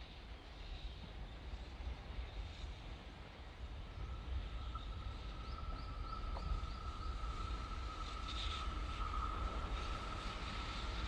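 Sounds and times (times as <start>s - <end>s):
train low rumble: 0.0s - 11.0s
locomotive high whine: 3.7s - 11.0s.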